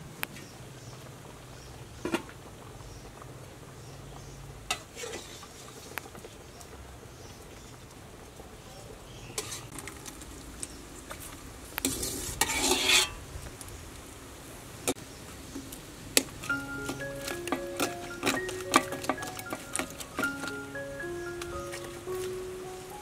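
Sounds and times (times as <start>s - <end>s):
pot lid clink: 16.8s - 20.5s.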